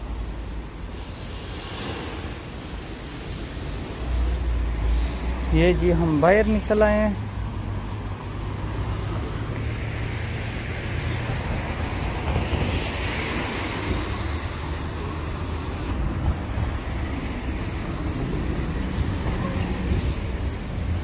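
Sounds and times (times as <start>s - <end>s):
passing vehicle hiss: 0.0s - 21.0s
traffic on wet road: 0.0s - 21.0s
wind rumble on microphone: 7.2s - 21.0s.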